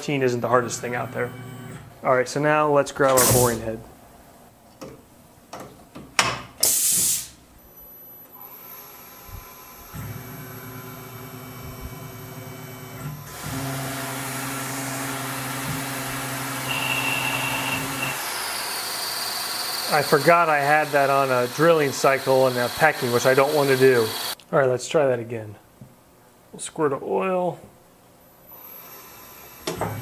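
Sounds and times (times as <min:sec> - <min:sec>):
air hiss blasts: 0:03.2 - 0:03.6, 0:06.6 - 0:07.4
coolant spray hiss: 0:03.2 - 0:03.6, 0:06.6 - 0:07.4
high whine of boring bar: 0:08.4 - 0:24.4
milling spindle humming: 0:15.4 - 0:24.4.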